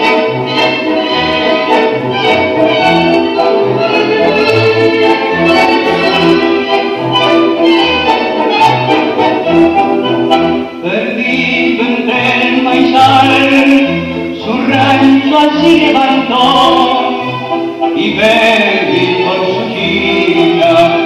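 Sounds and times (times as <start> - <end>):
strings: 0.0 - 21.0
bass line: 1.3 - 10.5
person singing: 10.8 - 21.0.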